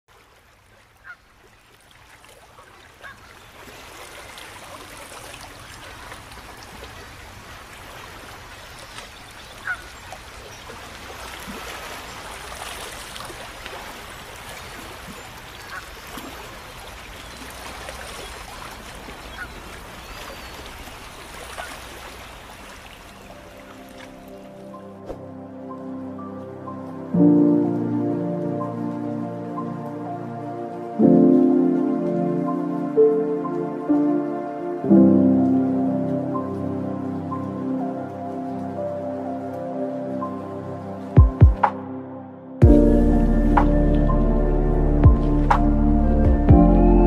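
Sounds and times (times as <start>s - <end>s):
fountain water splashing: 0.2s - 24.3s
geese honking: 9.6s - 9.9s.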